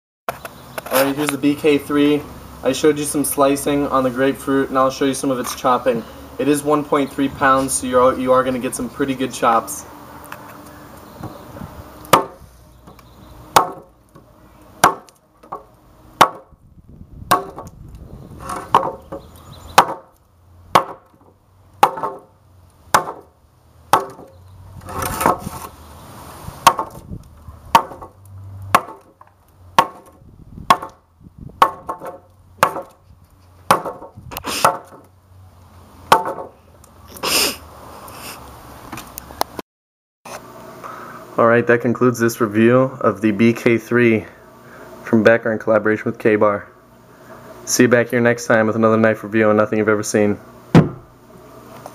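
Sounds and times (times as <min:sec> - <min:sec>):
knife chopping into wood: 0:12.1 - 0:12.4, 0:13.5 - 0:13.9, 0:14.8 - 0:15.6, 0:16.2 - 0:16.5, 0:17.3 - 0:17.7, 0:18.4 - 0:19.2, 0:19.8 - 0:20.1, 0:20.7 - 0:21.2, 0:21.8 - 0:22.3, 0:22.9 - 0:23.3, 0:23.9 - 0:24.3, 0:26.6 - 0:27.0, 0:27.7 - 0:29.2, 0:29.8 - 0:31.0, 0:31.6 - 0:33.0, 0:33.6 - 0:35.1, 0:36.1 - 0:36.6.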